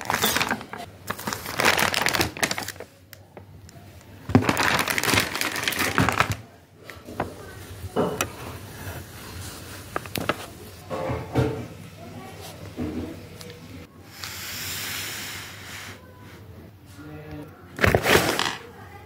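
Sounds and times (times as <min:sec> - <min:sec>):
plastic packaging crinkling: 0:00.0 - 0:03.6, 0:04.2 - 0:06.6, 0:09.2 - 0:10.8.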